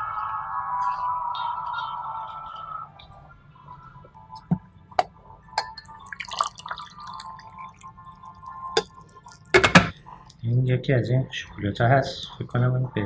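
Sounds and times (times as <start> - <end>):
glass and china clinking: 5.6 - 7.8
tea pouring into glass: 5.6 - 9.5.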